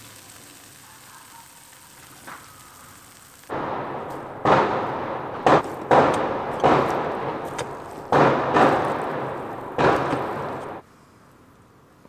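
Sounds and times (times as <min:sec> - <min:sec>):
firecracker bangs with echo: 0:03.5 - 0:10.8.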